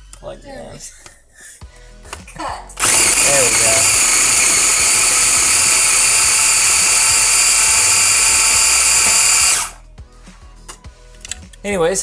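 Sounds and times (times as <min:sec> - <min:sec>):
electric food chopper running: 0:02.8 - 0:09.8.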